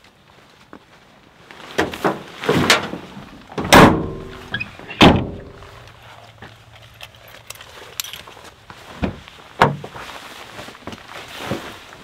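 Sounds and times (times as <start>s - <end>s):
truck door clunks and thuds: 3.6s - 5.7s, 9.0s - 10.0s.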